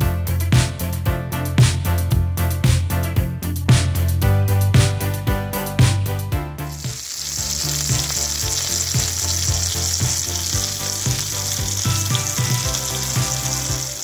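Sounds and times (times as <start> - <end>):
upbeat background music: 0.0 - 14.0
chicken sizzling in a pan: 6.7 - 14.0.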